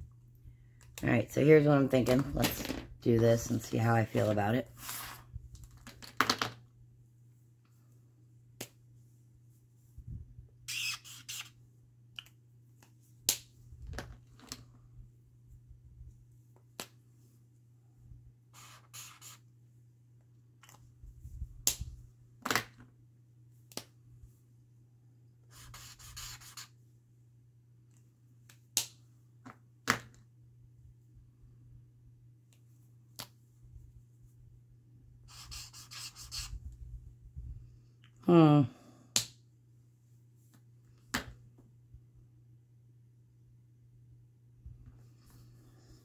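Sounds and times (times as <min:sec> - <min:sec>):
steady low hum: 0:30.3 - 0:46.0.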